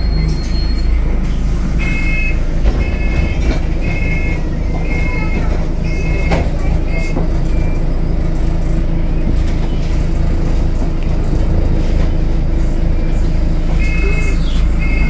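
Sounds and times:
bus diesel engine drone: 0.0 - 15.0
two-tone electronic beep: 1.8 - 7.9, 12.9 - 15.0.

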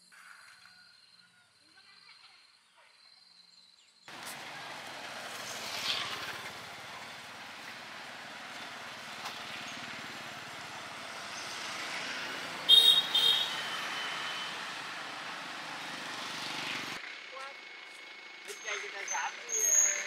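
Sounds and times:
motorbike traffic passing: 4.1 - 20.0
horn beeps: 12.6 - 14.7.

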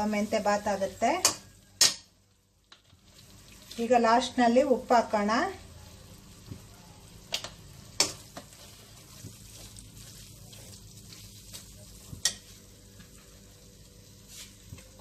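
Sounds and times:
low frying sizzle: 0.0 - 15.0
spatula clicking on pan: 1.2 - 2.1, 7.3 - 8.5
spatula stirring thick gravy: 8.0 - 12.6.

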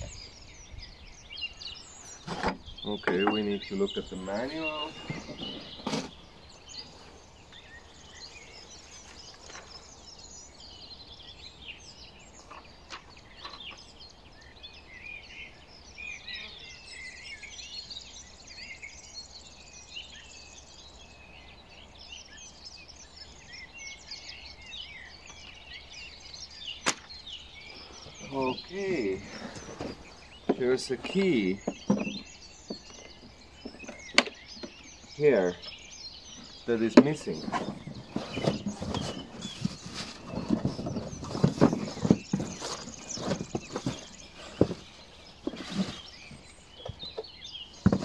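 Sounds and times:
small birds chirping: 0.0 - 48.0
handling knocks: 36.7 - 47.2, 47.8 - 48.0.

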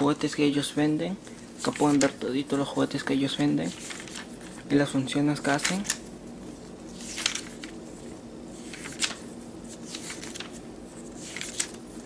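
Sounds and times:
paper pages flipping: 1.3 - 2.2, 3.3 - 4.7, 5.4 - 12.0.

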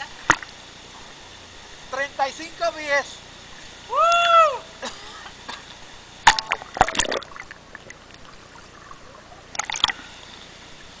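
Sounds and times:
river water splashing: 6.3 - 10.0.

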